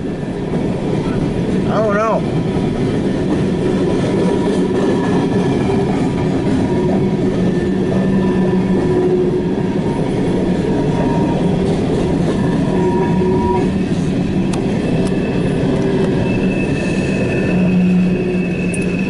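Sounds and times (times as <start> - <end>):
wheels rumbling on rail: 0.0 - 19.0
faint wheel squeal: 12.4 - 13.7, 15.1 - 19.0.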